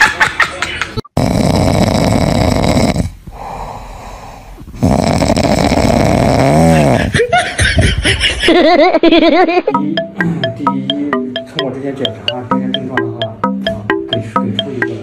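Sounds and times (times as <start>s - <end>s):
puppy snoring: 1.2s - 7.1s.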